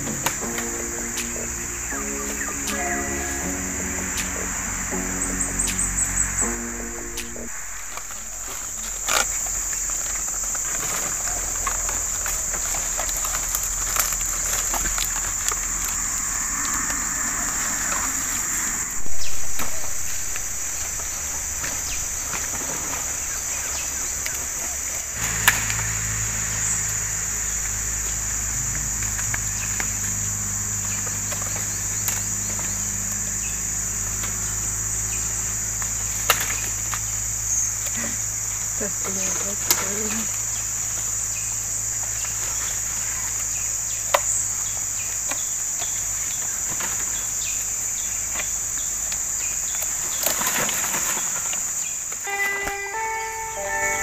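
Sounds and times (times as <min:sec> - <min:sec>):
low steady hum: 0:00.0 - 0:43.5
high-pitched insect drone: 0:00.0 - 0:54.0.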